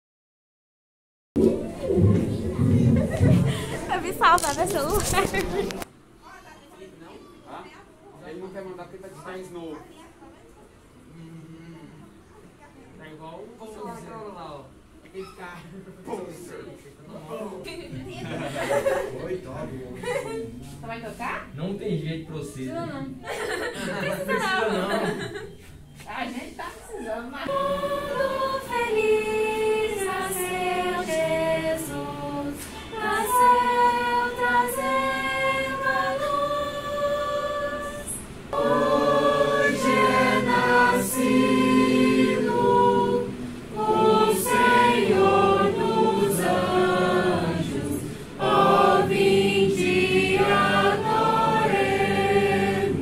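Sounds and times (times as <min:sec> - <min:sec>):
young people singing a hymn: 0:27.0 - 0:53.0.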